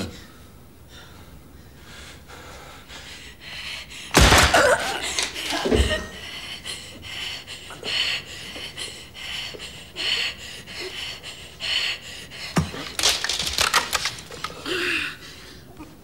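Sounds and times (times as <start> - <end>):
person breathing hard: 0.2 - 4.2, 4.9 - 13.6, 14.2 - 16.0.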